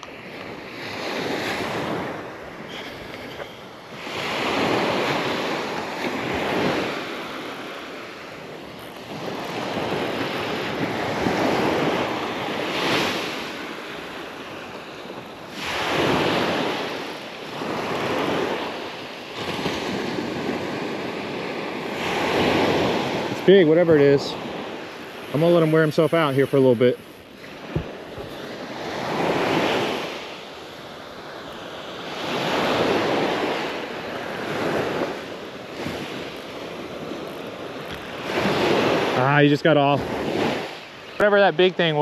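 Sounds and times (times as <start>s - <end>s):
wind buffeting microphone: 0.0s - 31.3s
small waves breaking on beach: 0.0s - 42.0s.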